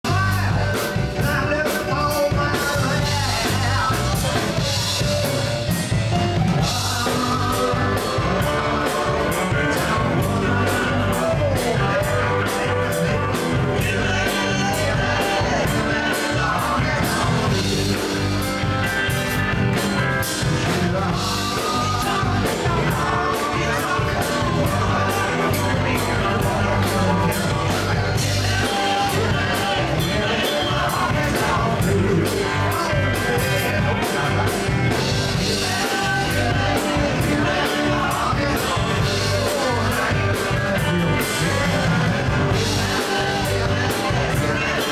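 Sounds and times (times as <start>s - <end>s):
drum kit beat: 0.0s - 44.9s
electric guitar: 0.0s - 44.9s
woman singing: 20.8s - 34.7s.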